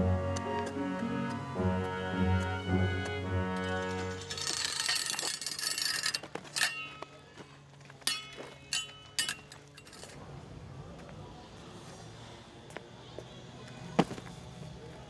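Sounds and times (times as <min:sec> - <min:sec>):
chain-link fence rattling: 0:03.6 - 0:07.2, 0:08.0 - 0:10.2
metallic clinks on fence: 0:04.2 - 0:07.2, 0:08.0 - 0:10.2.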